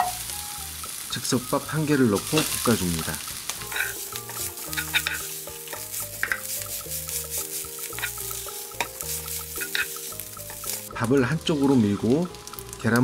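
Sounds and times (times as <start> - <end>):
rice sizzling in hot oil: 0.0 - 13.0
spatula scraping a pan: 2.2 - 10.9.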